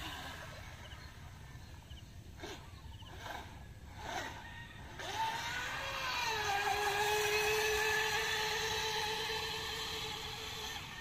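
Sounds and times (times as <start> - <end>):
electric motor high whine: 2.4 - 11.0.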